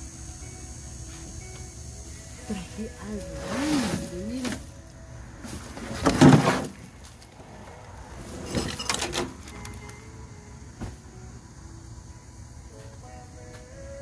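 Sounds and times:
rustling and bumping handling noise: 5.4 - 7.3.

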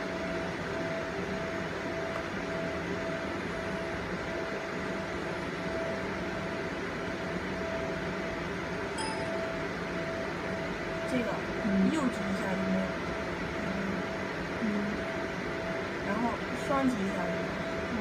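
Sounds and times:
mechanical hum and fan noise: 0.0 - 18.0
faint pulsing tone: 9.0 - 18.0.

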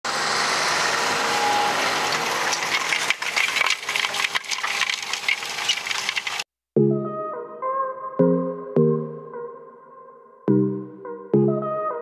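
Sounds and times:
tractor ploughing: 0.0 - 6.5
crackling and clattering: 2.0 - 6.5.

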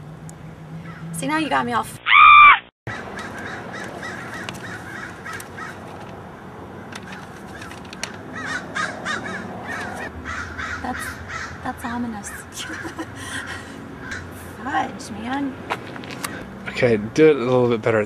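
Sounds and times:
outdoor background noise: 0.0 - 18.0
crows cawing: 0.8 - 1.1, 2.1 - 14.5, 16.2 - 16.7.

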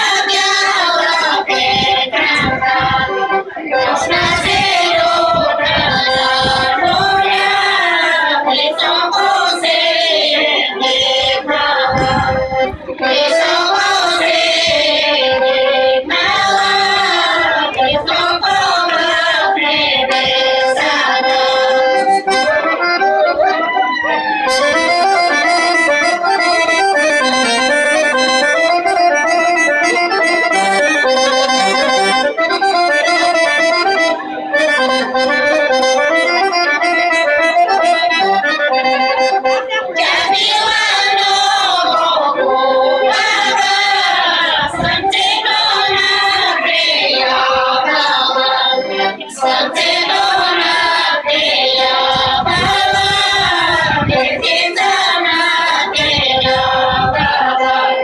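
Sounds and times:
women singing folk song in unison: 0.0 - 23.6, 39.5 - 58.0
accordion: 0.0 - 58.0.

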